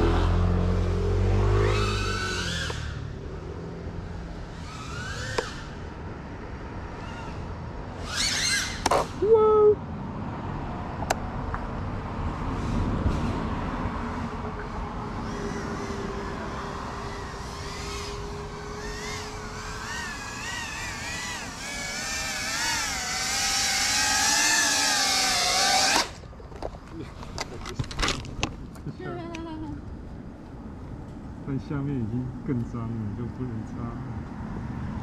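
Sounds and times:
quadcopter motors whining: 1.2s - 9.7s, 14.0s - 26.2s.

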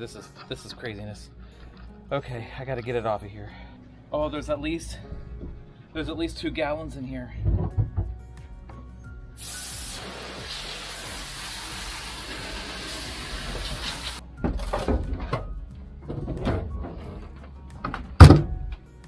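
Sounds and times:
knocks and scrapes: 7.4s - 8.2s, 14.4s - 18.5s
hose water spraying: 9.4s - 14.2s.

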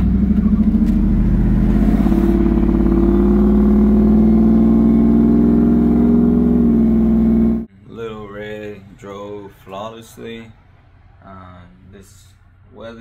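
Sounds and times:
truck engine accelerating: 0.0s - 7.7s.

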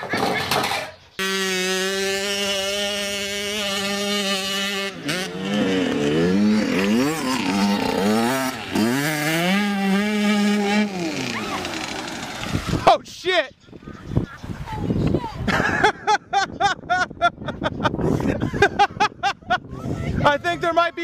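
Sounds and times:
dirt bike engine revving: 1.1s - 12.9s.

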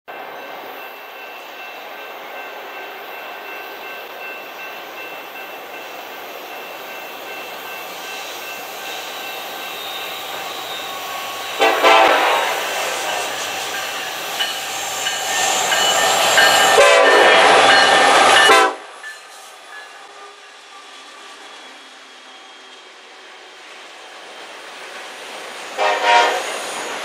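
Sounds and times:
freight train rumble: 0.1s - 27.0s
locomotive air horn blast: 11.6s - 12.8s, 16.7s - 17.6s, 18.4s - 18.9s, 25.8s - 26.6s.

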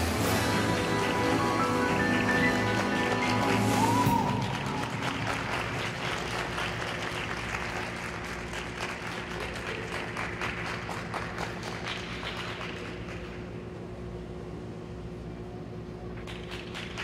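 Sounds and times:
audience applauding: 0.0s - 13.4s.

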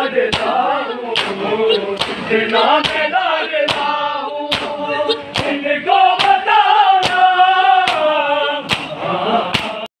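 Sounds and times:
men chanting together: 0.0s - 9.9s
hands slapping chests: 0.3s - 1.4s, 2.0s - 3.1s, 3.7s - 3.9s, 4.5s - 5.6s, 6.2s - 6.4s, 7.0s - 9.0s, 9.6s - 9.8s.

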